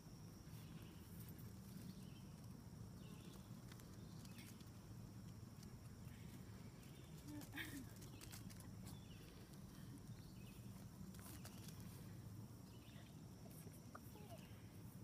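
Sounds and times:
faint low hum: 0.0 - 15.0
faint chirp: 6.0 - 14.9.

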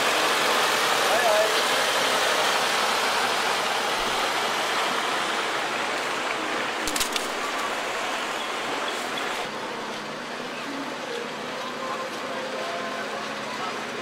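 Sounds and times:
rain hissing: 0.0 - 9.5.

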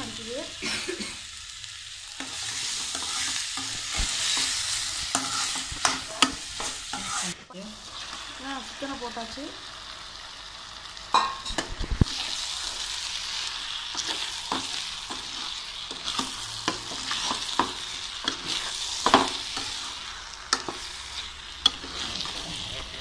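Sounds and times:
chicken sizzling in a pan: 0.0 - 23.0
spatula scraping a pan: 2.1 - 8.2, 13.9 - 23.0.

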